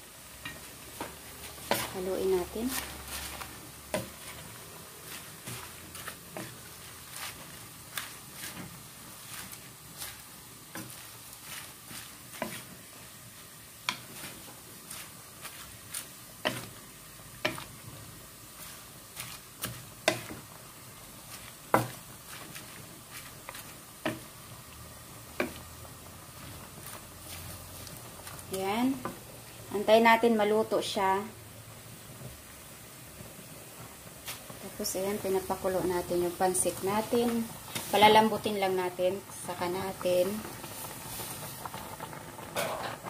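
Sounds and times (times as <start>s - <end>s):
faint sizzle: 0.0s - 43.0s
spatula scraping a wok: 0.4s - 24.4s, 25.2s - 29.2s, 35.0s - 38.7s, 42.5s - 43.0s.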